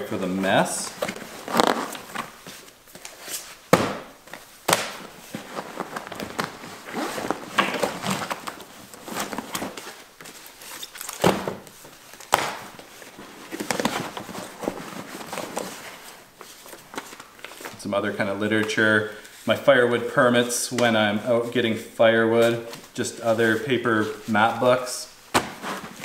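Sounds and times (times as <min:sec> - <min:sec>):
paper and fabric rustling: 0:00.8 - 0:03.6, 0:04.3 - 0:17.8
books knocking on table: 0:03.7 - 0:04.1.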